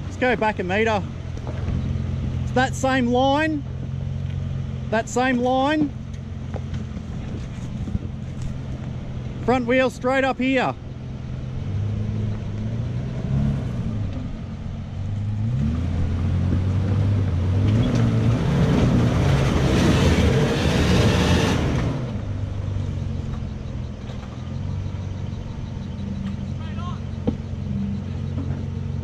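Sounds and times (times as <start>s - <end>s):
engine revving under load: 10.7s - 29.0s.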